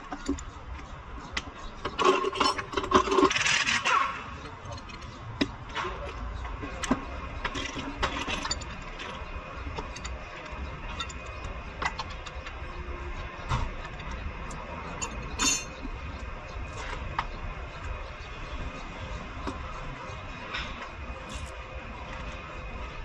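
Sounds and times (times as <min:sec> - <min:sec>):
ringing metal clink: 0:15.0 - 0:15.8.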